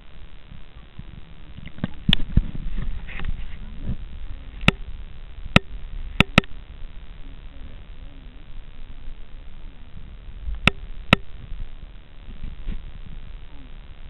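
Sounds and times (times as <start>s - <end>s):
muffled underwater ambience: 0.0s - 14.0s
sharp clicks and knocks: 5.5s - 6.6s, 10.6s - 11.4s.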